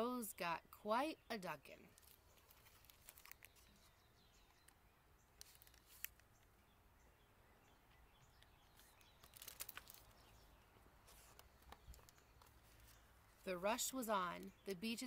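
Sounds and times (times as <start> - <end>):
book pages turning: 1.9 - 3.9, 5.4 - 6.4, 8.7 - 10.3, 11.0 - 13.0.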